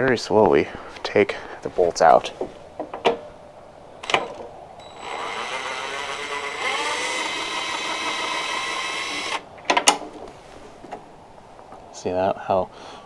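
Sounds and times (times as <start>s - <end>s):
impact driver motor whine: 4.0s - 9.4s.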